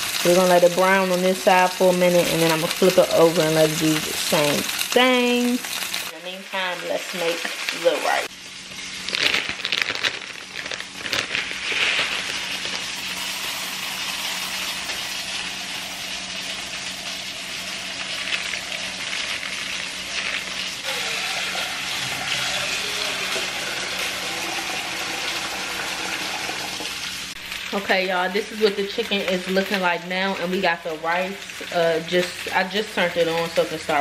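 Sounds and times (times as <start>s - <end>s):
dry rice poured into saucepan: 11.1s - 15.0s
tap water running into pot: 12.0s - 27.3s.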